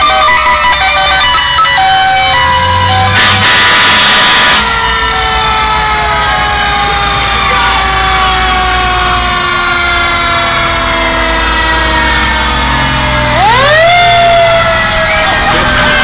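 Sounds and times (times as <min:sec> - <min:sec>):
fire truck sirens wailing: 0:00.0 - 0:16.0
truck engines running: 0:00.0 - 0:16.0.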